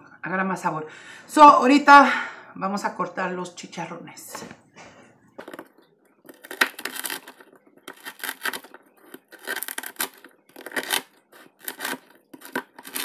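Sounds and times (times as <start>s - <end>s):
knife crunching fried pork rinds: 6.3s - 13.0s.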